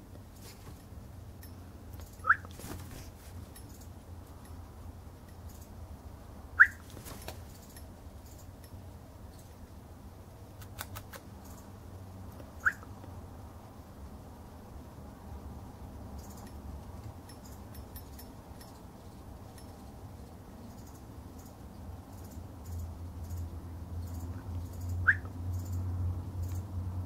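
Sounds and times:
cockatiel whistled calls: 0:02.2 - 0:02.5, 0:06.6 - 0:06.8, 0:12.6 - 0:12.9, 0:25.0 - 0:25.3.

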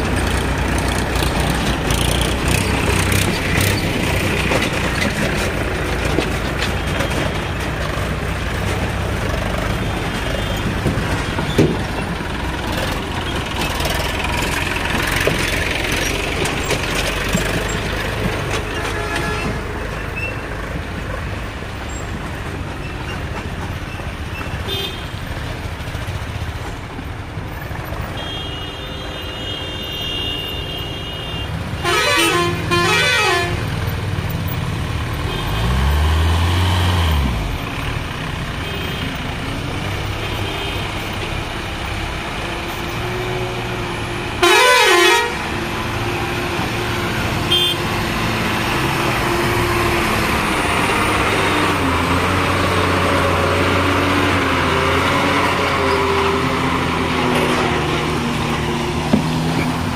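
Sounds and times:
engine revving: 0:00.0 - 0:05.6, 0:34.7 - 0:38.4, 0:41.7 - 0:59.9
truck engines running: 0:00.0 - 0:59.9
warbling vehicle horn: 0:28.2 - 0:33.6, 0:44.4 - 0:45.4, 0:47.5 - 0:47.9.

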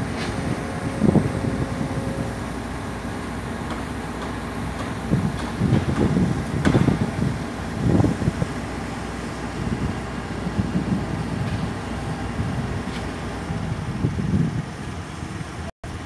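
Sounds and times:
excavator diesel engine running: 0:00.0 - 0:16.0
sharp knock: 0:06.6 - 0:07.0.

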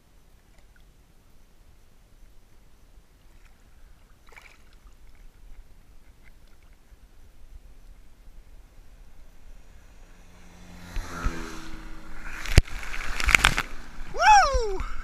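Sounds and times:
short pitched cry: 0:14.1 - 0:15.0.

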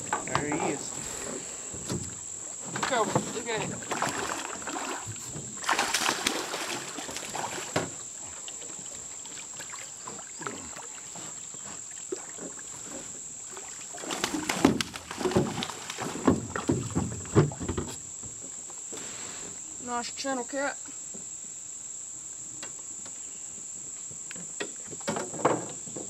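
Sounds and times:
high insect drone: 0:00.0 - 0:26.0
fish splashing in water: 0:02.8 - 0:11.2, 0:11.9 - 0:17.6.

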